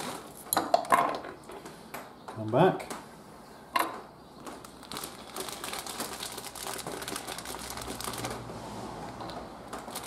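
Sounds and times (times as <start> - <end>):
plastic bag rustling: 0.0 - 0.4, 4.4 - 10.0.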